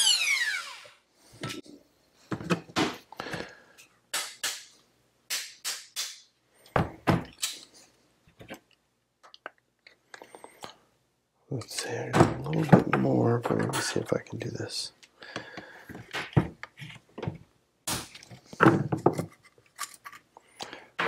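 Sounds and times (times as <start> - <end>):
metal parts and tools clattering: 18.5 - 20.3.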